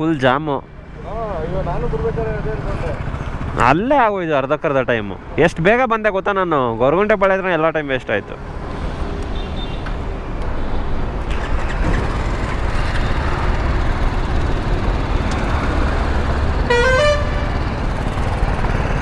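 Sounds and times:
motorcycle engines and traffic rumble: 0.0 - 19.0
vehicle horn toot: 16.7 - 17.5.

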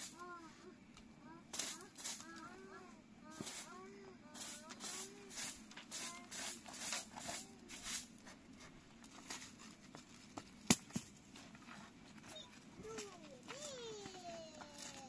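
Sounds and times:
straw broom sweeping: 1.5 - 2.5, 3.3 - 9.8.

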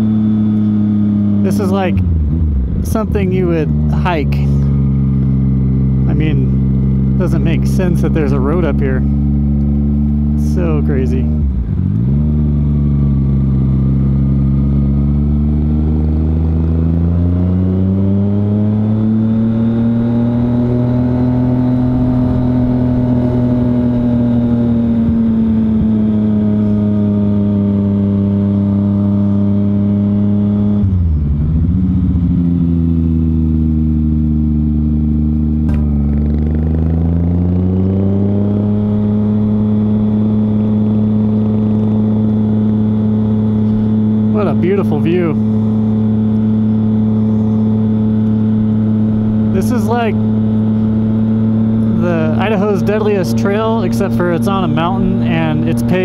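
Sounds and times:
motorcycle engine: 0.0 - 56.0.

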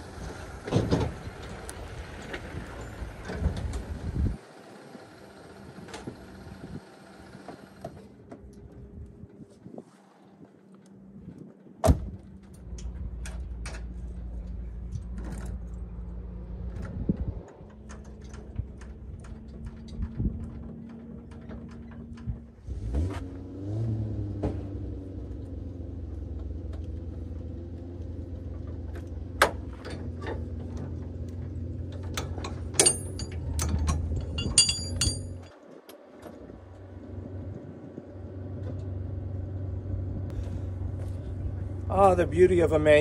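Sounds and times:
engine running: 0.0 - 43.0
metallic clinks: 32.8 - 35.5.

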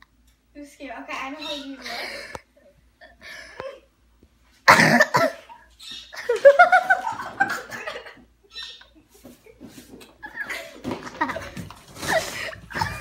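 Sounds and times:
person coughing loudly: 4.7 - 5.5.

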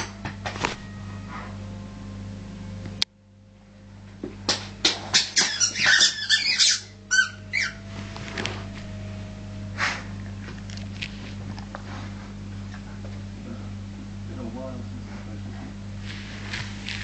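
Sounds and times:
rubber squeaky toy squeaking: 5.4 - 7.8.

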